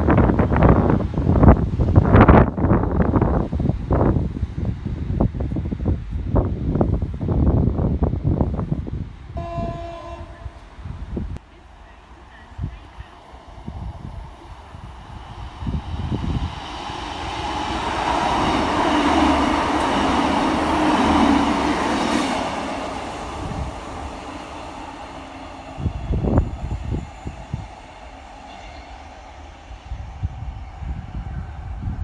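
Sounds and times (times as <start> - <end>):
diesel train passing: 0.0 - 32.0
wheels rumbling on rails: 10.4 - 32.0.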